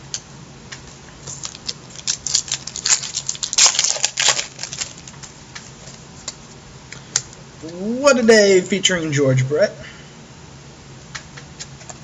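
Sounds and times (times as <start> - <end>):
trading cards rustling and clicking: 1.2 - 6.4.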